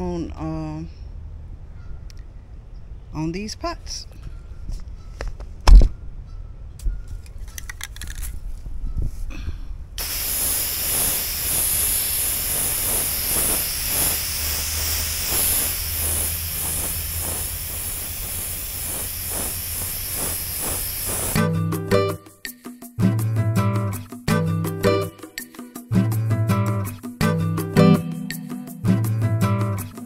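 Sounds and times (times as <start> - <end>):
loud thump: 5.7 - 6.0
aerosol spray can hissing: 10.0 - 21.5.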